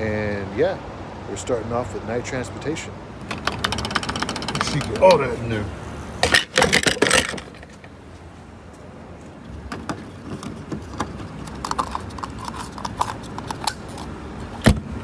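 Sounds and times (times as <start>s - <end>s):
fuel cap ratcheting clicks: 3.3s - 5.1s, 10.4s - 14.1s
fuel nozzle knocking: 3.3s - 5.1s.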